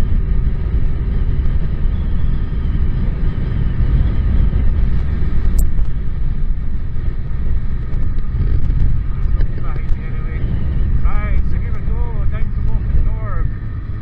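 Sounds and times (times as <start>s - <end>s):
motorcycle engine cruising: 0.0s - 14.0s
wind buffeting microphone: 0.0s - 14.0s.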